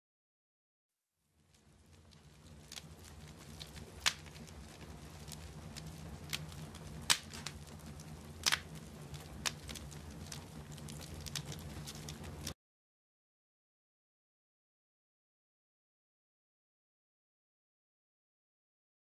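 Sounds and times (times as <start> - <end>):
wood fire crackling: 1.2 - 12.6
fire popping sharply: 1.4 - 12.6.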